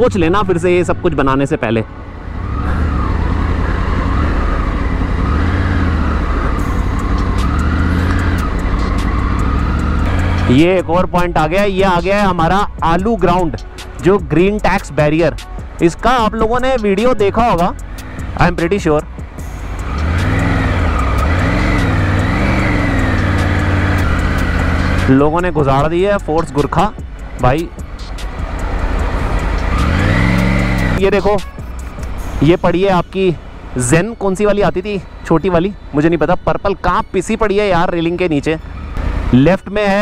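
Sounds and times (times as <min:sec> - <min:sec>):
motorcycle engine running: 0:02.2 - 0:11.0, 0:16.4 - 0:35.5.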